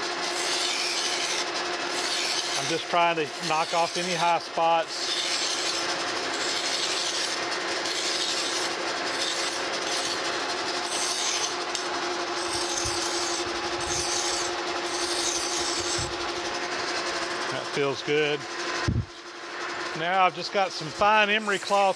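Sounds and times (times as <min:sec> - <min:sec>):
hand file rasping on metal: 0:00.0 - 0:11.8, 0:12.4 - 0:16.4, 0:21.2 - 0:21.9
lathe humming: 0:00.0 - 0:21.9.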